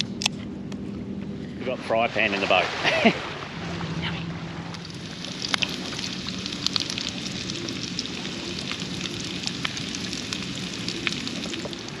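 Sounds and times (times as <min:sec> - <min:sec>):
spitting oil crackling and popping: 0:04.7 - 0:12.0
food sizzling in oil: 0:04.8 - 0:12.0.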